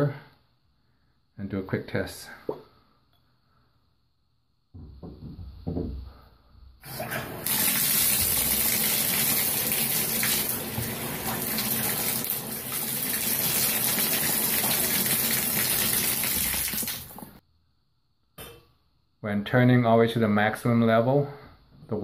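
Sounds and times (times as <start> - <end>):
shower water running hard: 6.9 - 17.4.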